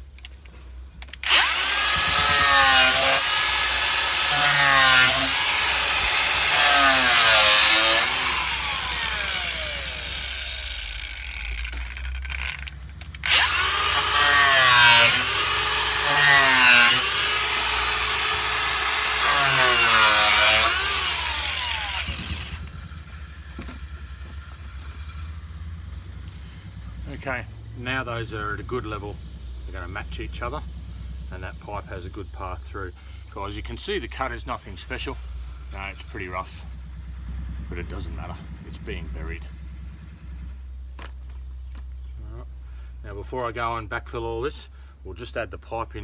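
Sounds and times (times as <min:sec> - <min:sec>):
angle grinder cutting plastic: 0:00.1 - 0:24.9.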